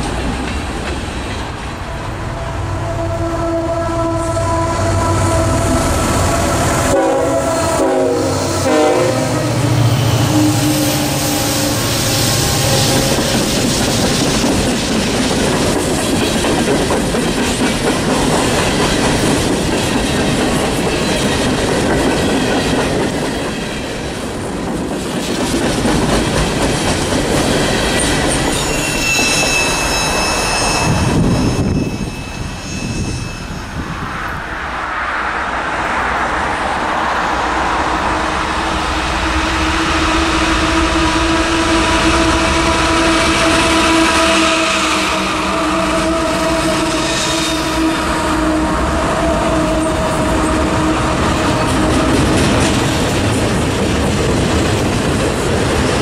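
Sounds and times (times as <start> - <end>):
diesel locomotive engine: 0.0 - 56.0
freight train cars rumbling: 0.0 - 56.0
train horn: 1.8 - 14.2, 37.6 - 52.8
high wheel squeal: 9.4 - 14.4, 27.6 - 34.4.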